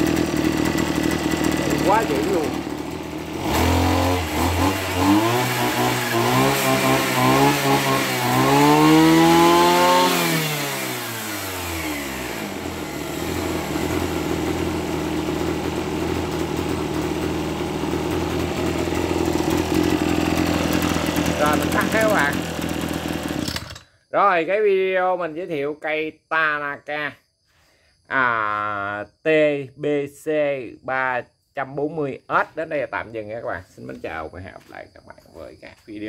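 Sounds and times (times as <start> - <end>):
brush cutter engine revving and idling: 0.0 - 24.0.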